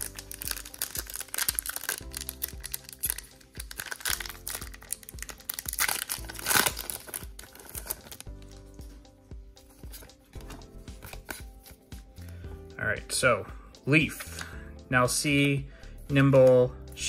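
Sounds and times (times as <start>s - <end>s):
foil wrapper crinkling: 0.0s - 8.3s
background music: 0.0s - 17.0s.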